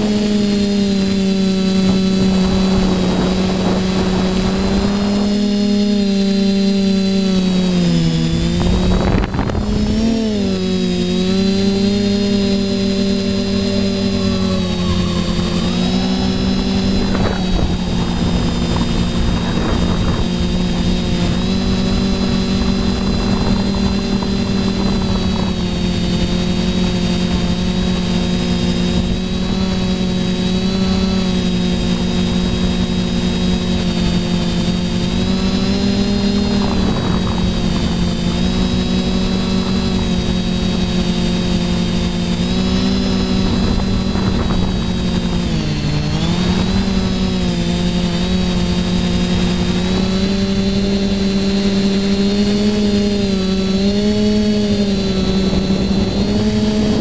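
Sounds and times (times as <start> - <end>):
drone propellers whining: 0.0 - 57.0.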